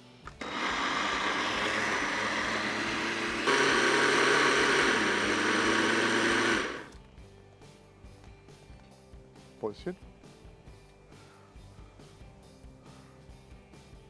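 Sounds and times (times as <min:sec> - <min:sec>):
blender motor whirring: 0:00.4 - 0:06.9.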